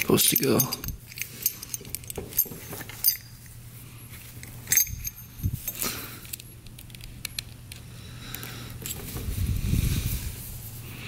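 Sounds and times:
small metal parts clicking: 0:00.0 - 0:03.5, 0:04.4 - 0:09.1.

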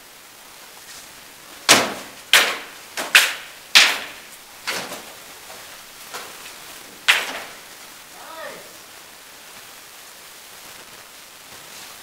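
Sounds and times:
rattan weapons striking armour: 0:01.7 - 0:05.1, 0:07.1 - 0:07.6.

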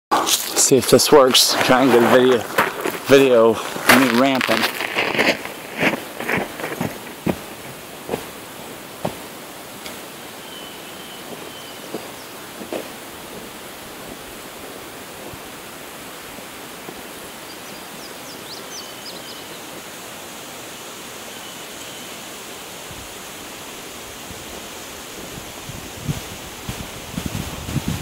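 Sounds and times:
outdoor background rush: 0:00.1 - 0:28.0
faint high chirps: 0:10.4 - 0:12.4
wind gusts on microphone: 0:24.0 - 0:28.0.

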